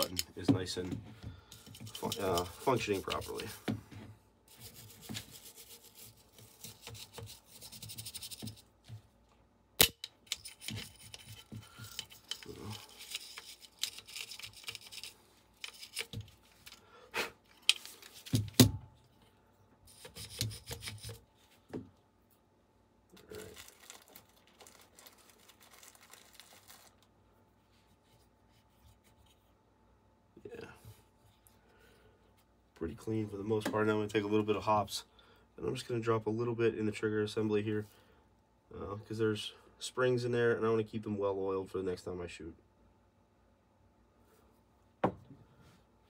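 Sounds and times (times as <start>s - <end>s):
wire brush scrubbing metal: 1.6s - 3.6s, 4.5s - 8.6s
metal parts clicking and knocking: 9.8s - 16.8s.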